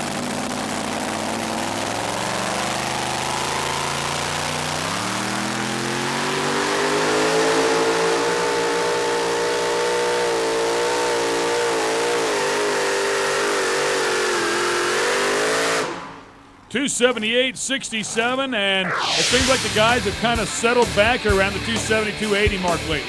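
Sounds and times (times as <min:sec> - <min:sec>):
supercharged engine at full throttle: 0:00.0 - 0:16.3.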